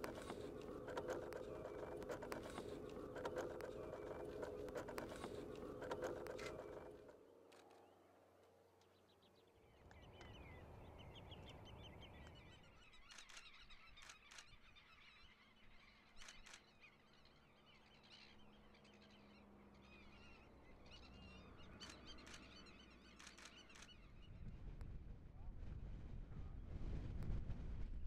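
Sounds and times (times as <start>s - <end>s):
birds chattering: 0.0s - 7.1s.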